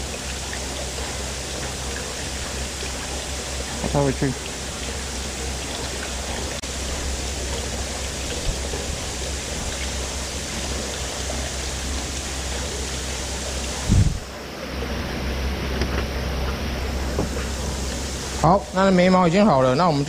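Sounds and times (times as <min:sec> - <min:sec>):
low thump: 0:17.1 - 0:17.4.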